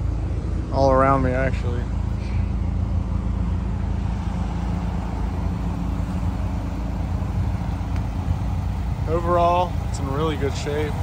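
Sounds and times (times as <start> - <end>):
car engine idling: 0.0 - 11.0
passing traffic: 0.0 - 11.0.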